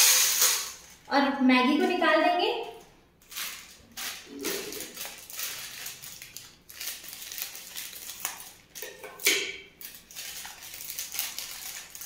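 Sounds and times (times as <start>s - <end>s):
plastic packet crinkling: 0.0s - 1.0s, 3.2s - 9.0s, 9.8s - 12.0s.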